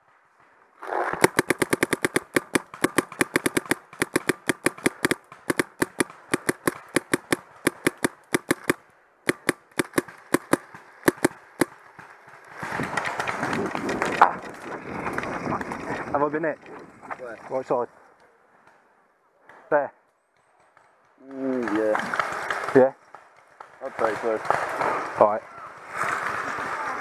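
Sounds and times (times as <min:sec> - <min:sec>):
paintball marker firing rapidly: 0:01.0 - 0:13.6
wind rush and movement noise: 0:12.5 - 0:17.6.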